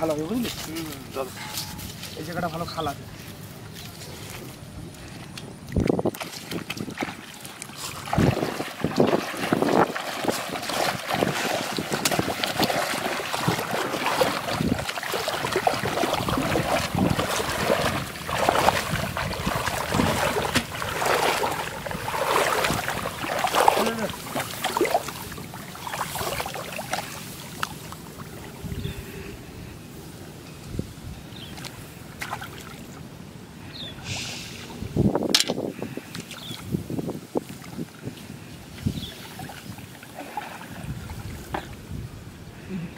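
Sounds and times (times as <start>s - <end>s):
water splashing around legs: 3.3s - 28.7s, 31.5s - 32.9s, 36.1s - 41.8s.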